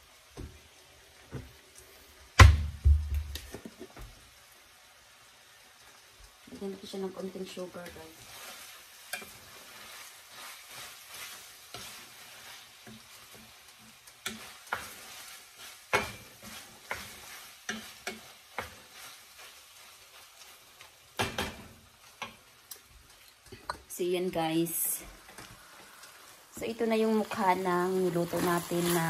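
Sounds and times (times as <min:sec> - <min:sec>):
food sizzling in pan: 0:00.0 - 0:29.0
wooden spoon scraping frying pan: 0:07.7 - 0:22.4, 0:27.2 - 0:29.0.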